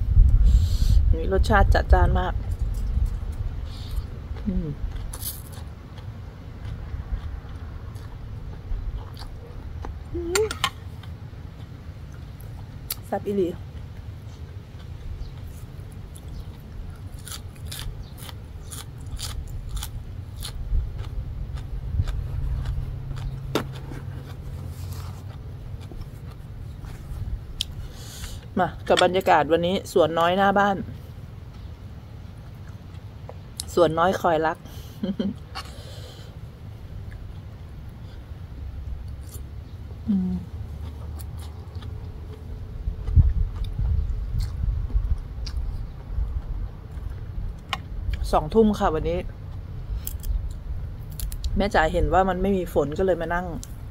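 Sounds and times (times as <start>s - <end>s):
low steady rumble: 0.0s - 53.9s
crunchy chewing: 2.5s - 13.1s, 13.7s - 28.5s, 31.0s - 33.8s, 39.0s - 48.3s, 49.3s - 51.6s
person humming: 4.4s - 4.8s, 10.1s - 10.6s, 40.0s - 40.6s
person chewing and slurping: 17.2s - 28.5s.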